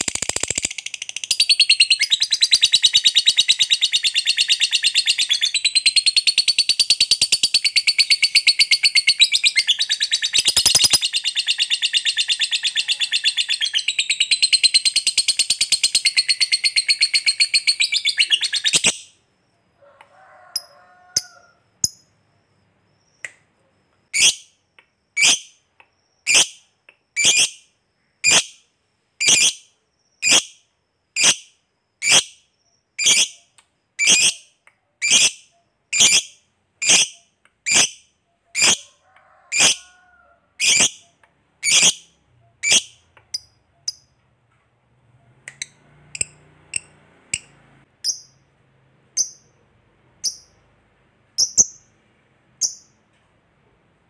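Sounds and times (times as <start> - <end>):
lovebird chattering trill: 0.0 - 19.1, 35.0 - 38.8, 40.6 - 44.1, 51.4 - 51.9
lovebird sharp high calls: 0.0 - 19.1, 35.0 - 38.9, 39.5 - 39.8, 40.6 - 44.1
faint bird chirps: 0.0 - 44.2.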